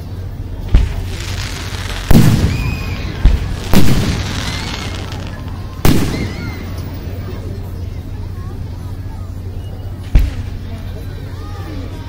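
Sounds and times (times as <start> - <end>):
firework shells booming: 0.6 - 6.9.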